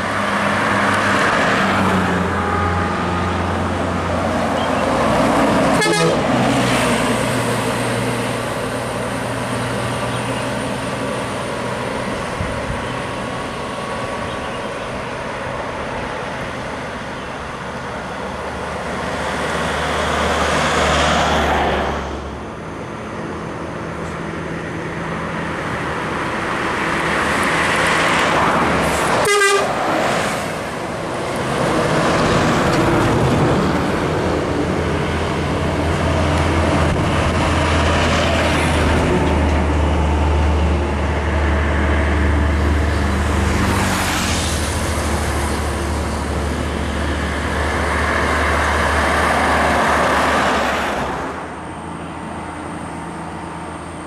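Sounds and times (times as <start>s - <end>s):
buses passing on highway: 0.0s - 54.0s
short horn toot: 5.8s - 6.2s, 29.2s - 29.7s.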